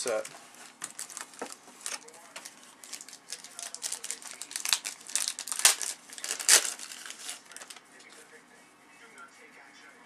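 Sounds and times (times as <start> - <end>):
cellophane wrapper crinkling and tearing: 0.0 - 7.8.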